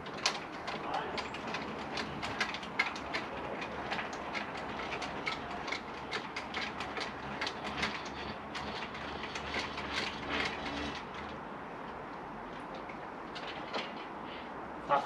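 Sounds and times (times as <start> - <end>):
awning crank gear clicking: 0.0 - 11.4.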